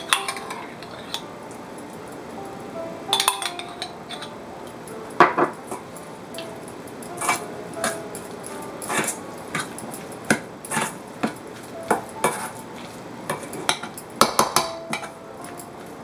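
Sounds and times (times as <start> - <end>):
metal utensil scraping bowl: 0.0 - 1.3, 7.2 - 8.0, 8.8 - 11.4, 12.2 - 12.6.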